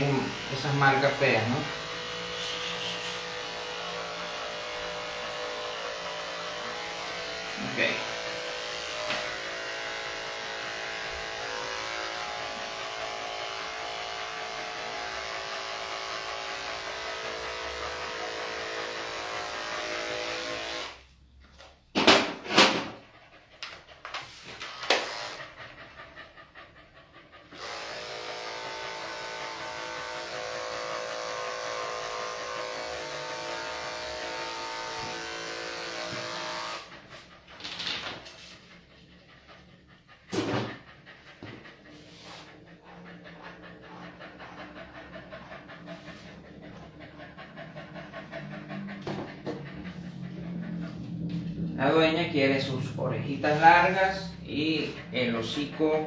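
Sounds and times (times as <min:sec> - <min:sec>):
dog panting: 0:00.0 - 0:19.8, 0:22.8 - 0:56.0
electric clippers humming: 0:00.0 - 0:21.0, 0:24.7 - 0:25.6, 0:27.5 - 0:36.9.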